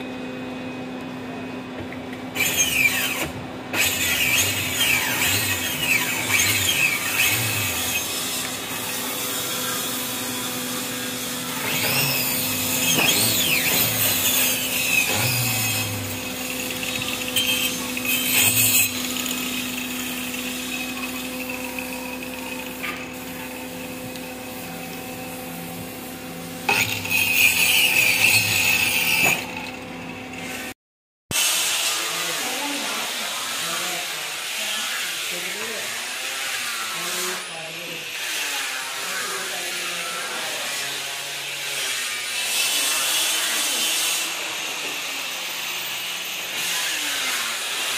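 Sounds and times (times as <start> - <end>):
air compressor humming: 0.0 - 30.7
woodworking machine running: 2.4 - 30.7.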